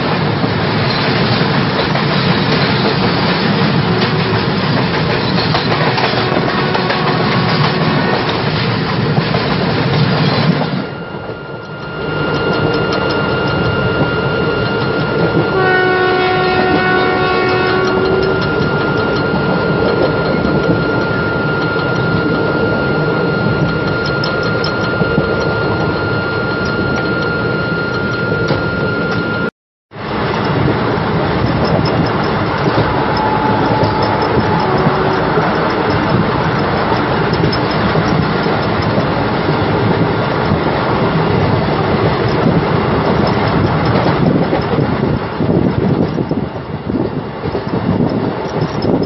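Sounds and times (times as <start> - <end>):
train wheels rumbling over rail joints: 0.0 - 49.0
locomotive horn: 3.8 - 4.6, 5.9 - 8.5, 15.0 - 21.4, 32.5 - 37.0.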